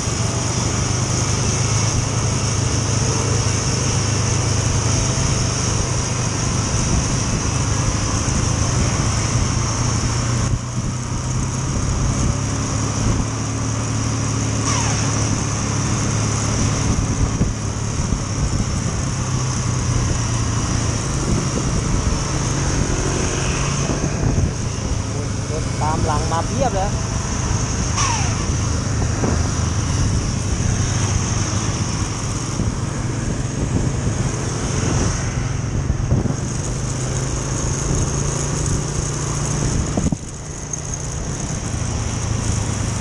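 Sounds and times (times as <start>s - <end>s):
rushing wind noise: 0.0s - 43.0s
scooter engine running: 0.0s - 43.0s
falling tone: 27.9s - 29.5s.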